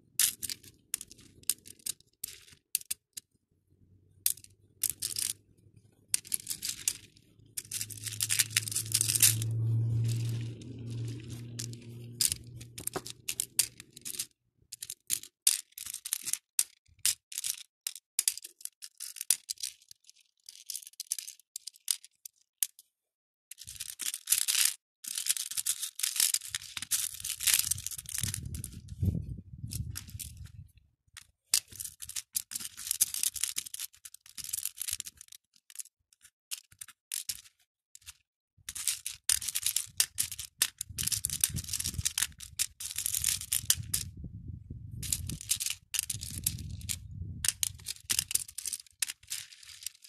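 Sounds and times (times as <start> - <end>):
beads clicking and rattling: 0.2 - 3.3, 4.2 - 22.8, 23.5 - 30.5, 31.2 - 44.2, 45.0 - 50.0
low steady hum: 7.2 - 13.6.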